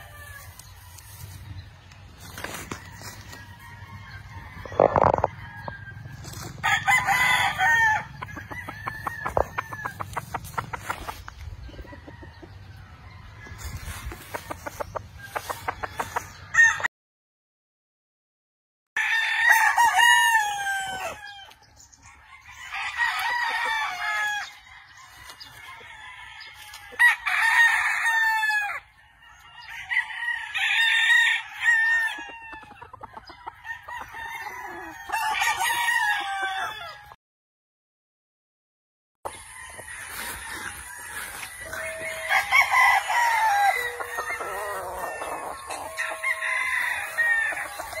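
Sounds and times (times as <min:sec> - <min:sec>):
roosters crowing: 0:00.0 - 0:16.9, 0:19.0 - 0:37.2, 0:39.3 - 0:48.0
chicken clucks: 0:08.1 - 0:16.5, 0:31.5 - 0:35.6, 0:39.3 - 0:48.0.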